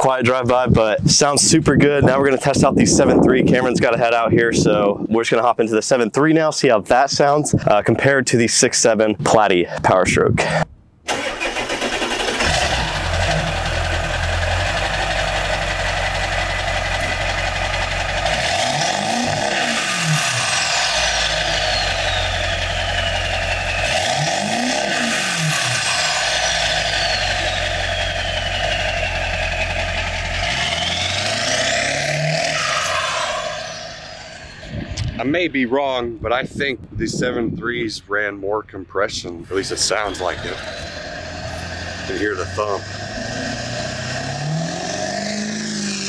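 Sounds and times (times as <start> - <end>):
diesel truck engine idling and revving: 10.4 - 35.2, 39.4 - 46.0
turbo whistle falling in pitch: 19.9 - 34.3.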